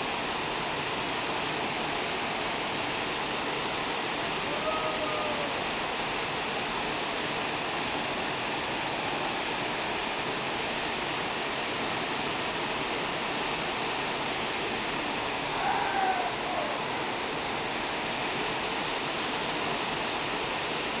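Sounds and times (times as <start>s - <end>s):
waterfall pouring into pool: 0.0s - 21.0s
faint call: 4.4s - 5.7s, 15.5s - 17.0s.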